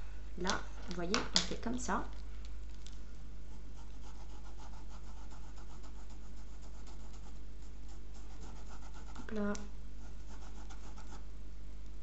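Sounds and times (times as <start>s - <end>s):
steady low hum: 0.0s - 12.0s
pencil scratching on paper: 3.8s - 9.4s, 10.0s - 11.2s.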